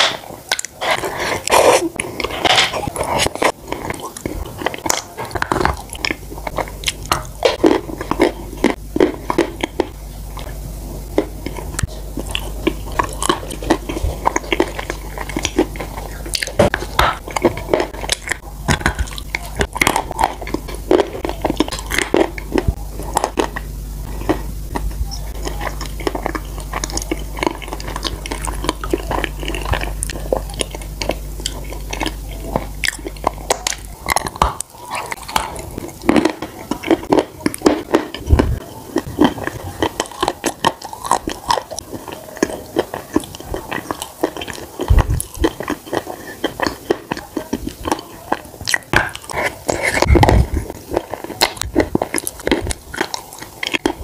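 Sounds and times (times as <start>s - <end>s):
biting and chewing cookies: 0.0s - 54.0s.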